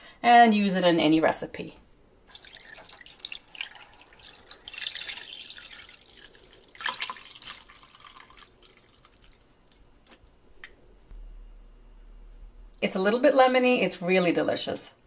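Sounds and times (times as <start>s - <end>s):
liquid pouring through strainer: 2.3s - 10.1s.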